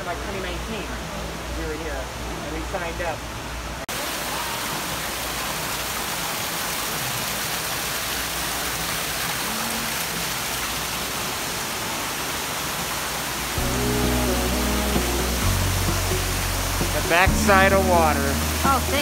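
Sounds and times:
waterfall rushing: 3.9s - 19.0s.

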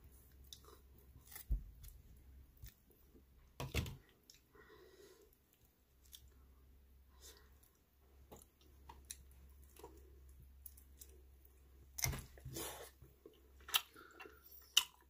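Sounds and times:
close chewing with mouth clicks: 0.2s - 2.0s, 7.2s - 15.0s.

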